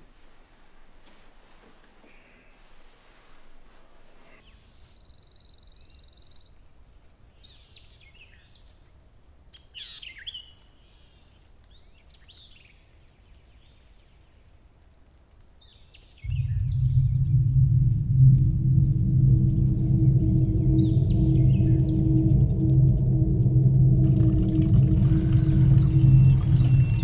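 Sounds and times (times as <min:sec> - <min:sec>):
small birds singing: 0:04.4 - 0:27.0
low steady rumble: 0:16.2 - 0:27.0
buzzy bird trill: 0:18.6 - 0:27.0.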